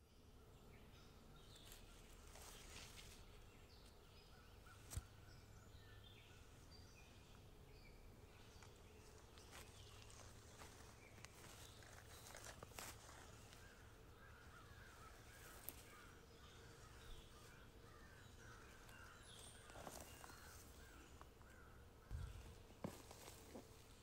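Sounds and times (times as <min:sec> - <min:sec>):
light rustles in grass: 0:01.5 - 0:04.0, 0:04.6 - 0:05.6, 0:08.3 - 0:24.0
distant bird calling: 0:08.7 - 0:23.8.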